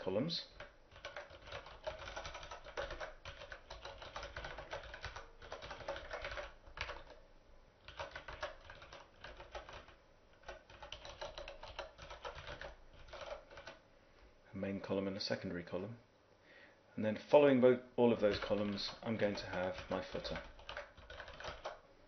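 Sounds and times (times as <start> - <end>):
computer keyboard typing: 0.5 - 13.8, 18.2 - 21.8.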